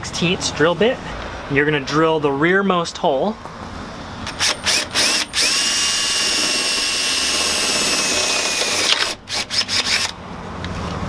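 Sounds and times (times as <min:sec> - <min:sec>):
cordless drill drilling steel: 0:04.2 - 0:10.2.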